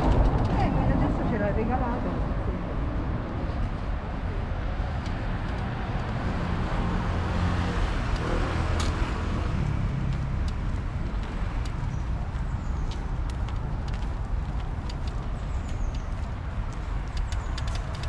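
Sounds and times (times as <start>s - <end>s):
cars driving past: 0.0s - 15.8s
light clicks: 12.9s - 18.0s.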